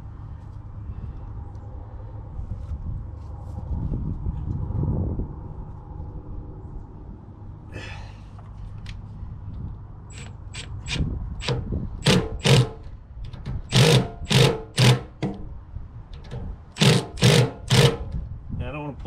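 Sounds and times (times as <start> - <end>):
ratchet wrench clicking: 10.1 - 12.6, 13.7 - 15.0.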